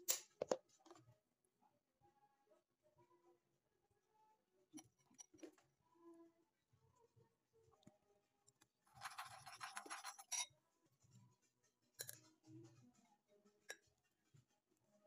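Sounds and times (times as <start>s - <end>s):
metal spoon scraping ceramic bowl: 8.9s - 10.6s, 11.9s - 12.4s.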